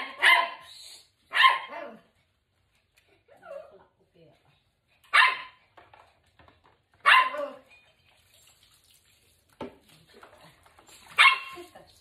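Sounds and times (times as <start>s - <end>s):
small dog barking: 0.0s - 0.6s, 1.3s - 2.0s, 5.1s - 5.6s, 7.0s - 7.6s, 11.2s - 11.6s.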